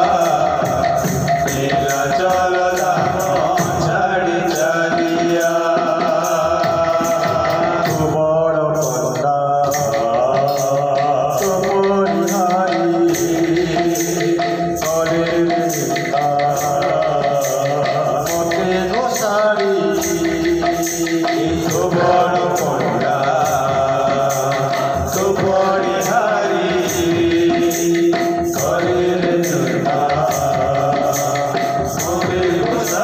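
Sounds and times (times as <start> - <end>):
hand drum: 0.0 - 33.0
men singing devotional song: 0.0 - 33.0.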